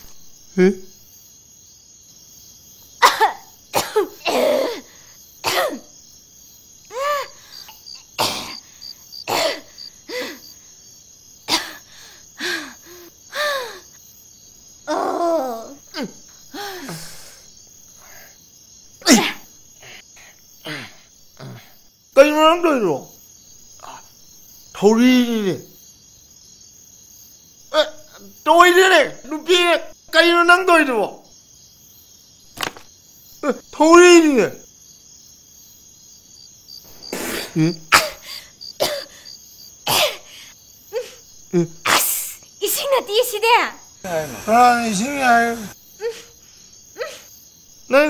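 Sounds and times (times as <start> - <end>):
crickets chirring: 0.0 - 48.0
person coughing and gasping: 3.0 - 5.9, 8.2 - 8.7, 9.3 - 10.3, 11.5 - 11.9, 19.0 - 19.4, 37.0 - 39.2, 39.9 - 40.3.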